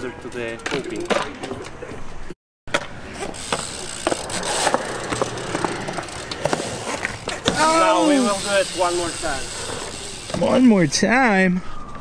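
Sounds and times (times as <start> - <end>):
bike clicks and knocks: 0.2 - 1.8, 2.7 - 10.6
bike tyre hiss on concrete: 3.3 - 10.7.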